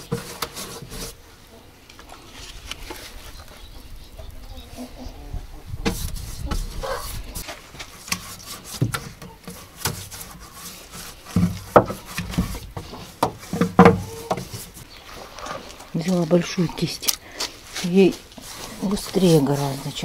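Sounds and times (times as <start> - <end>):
paintbrush scraping on wood: 0.0 - 1.2, 5.9 - 20.0
brush knocking against wood: 8.0 - 14.8.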